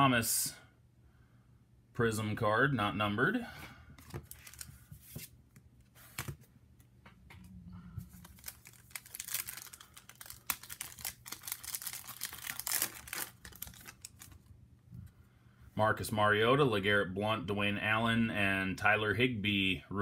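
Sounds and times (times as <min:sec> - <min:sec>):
wrapper crinkling and tearing: 0:04.2 - 0:04.7, 0:08.1 - 0:14.5.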